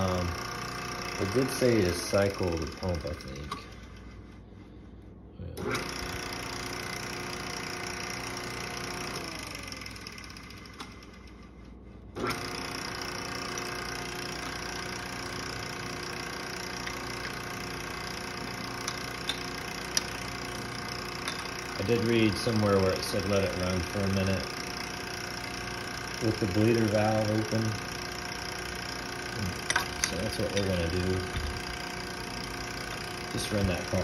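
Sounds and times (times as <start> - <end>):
electric pump motor running: 0.0 - 34.0.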